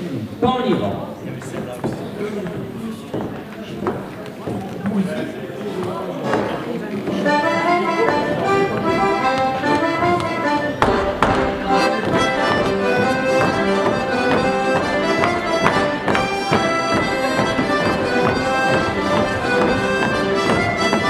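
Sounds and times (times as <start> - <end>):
folk dance tune on accordion: 5.6 - 21.0
clogs knocking on wooden stage: 10.1 - 21.0.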